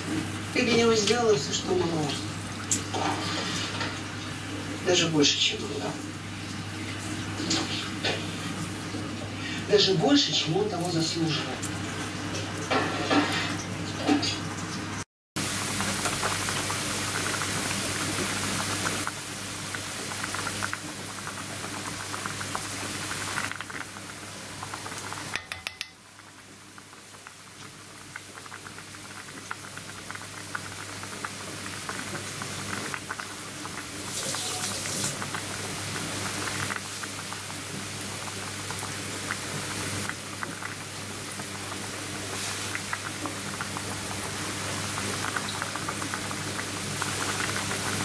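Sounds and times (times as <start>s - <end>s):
food bubbling and crackling: 0.0s - 48.0s
low appliance hum: 0.0s - 48.0s.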